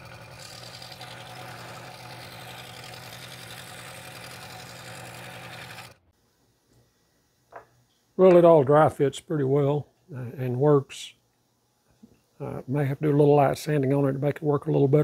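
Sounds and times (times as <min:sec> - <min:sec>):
scroll saw cutting wood: 0:00.0 - 0:06.0.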